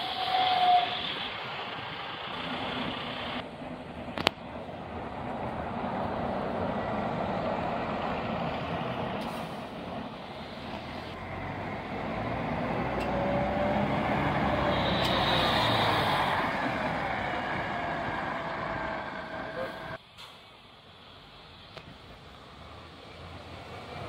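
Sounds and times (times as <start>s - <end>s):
bus pulling away: 0.0s - 24.0s
buses driving past: 0.0s - 24.0s
air brake hiss: 9.2s - 9.7s, 19.6s - 20.5s.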